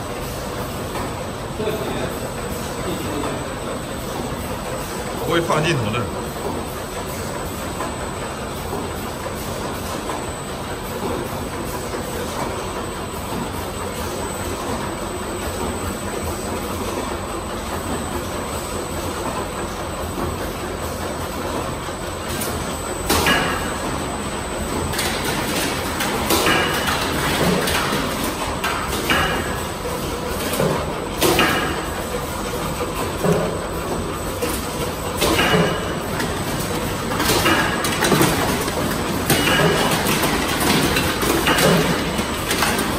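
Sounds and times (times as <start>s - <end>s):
machine and conveyor noise: 0.0s - 42.9s.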